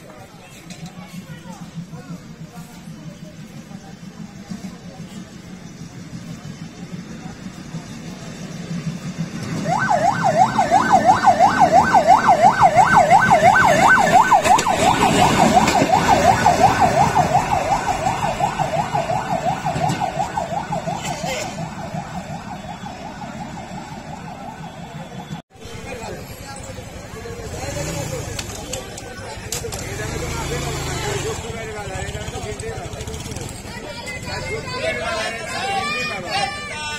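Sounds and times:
rail trolley rumble: 0.0 - 36.9
warbling electronic siren: 8.2 - 25.4.

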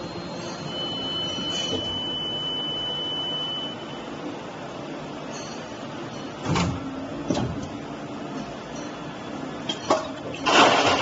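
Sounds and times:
high steady whine: 0.0 - 6.4.

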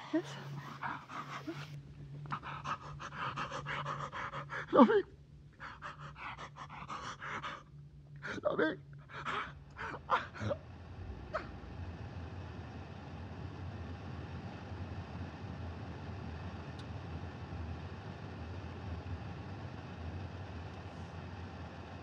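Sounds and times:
car engine drone: 0.0 - 4.5, 5.5 - 22.0
man sobbing: 2.8 - 5.1, 8.2 - 10.6.

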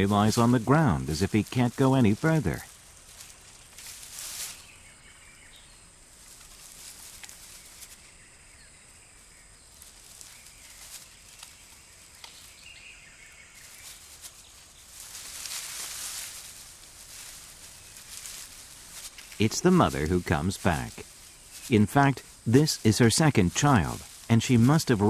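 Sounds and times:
rustle: 0.0 - 25.0
faint clicks: 11.3 - 12.5.

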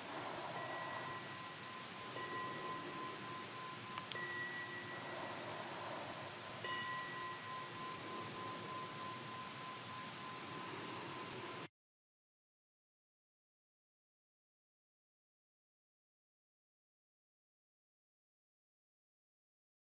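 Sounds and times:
faint chime ringing: 0.0 - 11.7.

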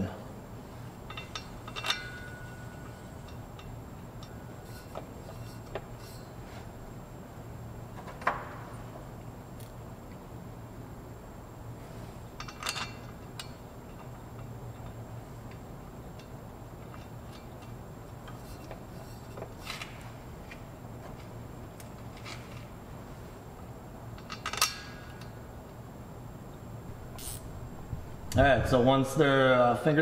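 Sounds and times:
steady low hum: 0.0 - 30.0
metal bolts clinking: 1.0 - 6.4, 12.4 - 20.6, 24.1 - 25.5.

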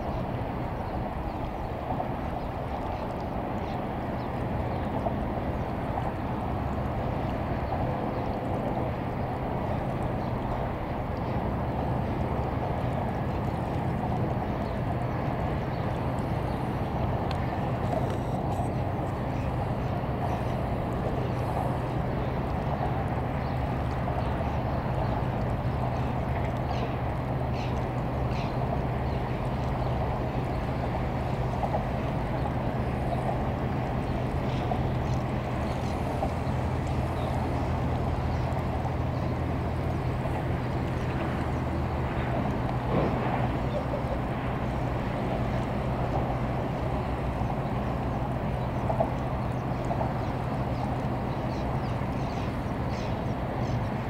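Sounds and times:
boat engine humming: 0.0 - 54.0
faint bird calls: 43.0 - 44.3, 49.6 - 54.0.

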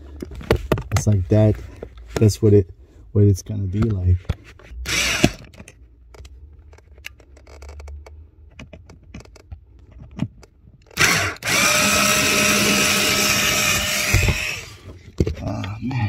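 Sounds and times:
power drill whining: 4.9 - 5.5, 10.9 - 14.9.

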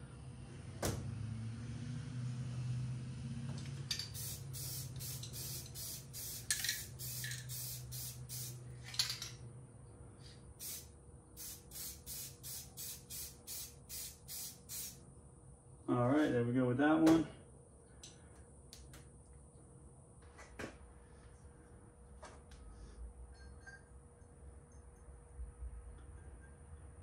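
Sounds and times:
spray can hissing: 3.9 - 8.6, 10.6 - 15.0.

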